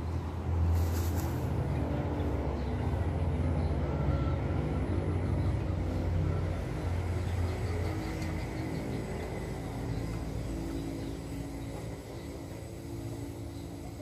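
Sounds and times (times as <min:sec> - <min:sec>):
brief hiss: 0:00.7 - 0:01.5.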